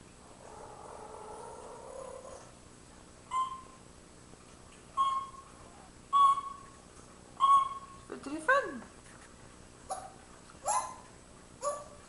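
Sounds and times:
parrot whistling calls: 3.3 - 3.8, 5.0 - 5.5, 6.1 - 6.7, 7.4 - 8.1.

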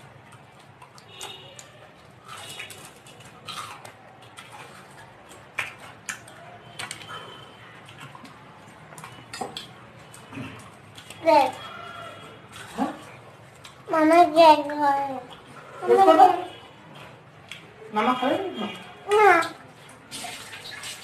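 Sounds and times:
chewing puffed rice: 0.0 - 13.9, 16.5 - 17.8.

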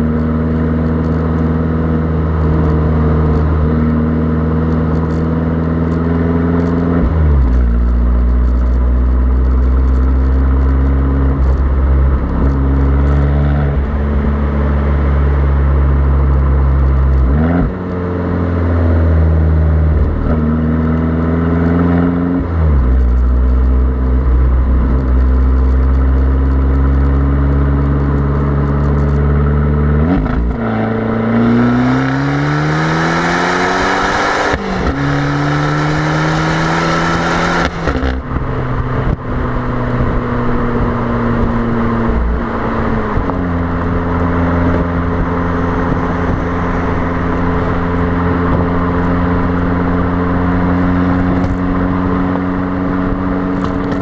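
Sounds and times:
car exhaust accelerating: 0.0 - 54.0
wind rumble on microphone: 33.0 - 54.0.

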